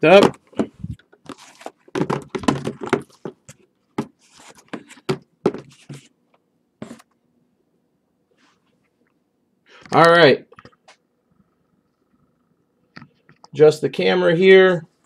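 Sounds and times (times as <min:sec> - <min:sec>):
boxes knocking and scraping on table: 0:00.0 - 0:06.1, 0:06.8 - 0:07.1.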